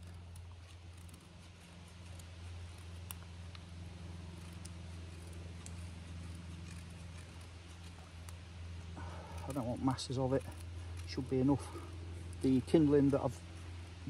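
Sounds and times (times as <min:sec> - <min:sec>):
knife scraping wood shavings: 0:00.0 - 0:14.0.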